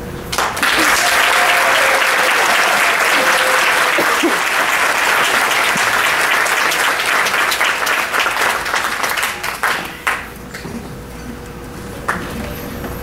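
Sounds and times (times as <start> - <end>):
audience applauding: 0.3 - 10.4.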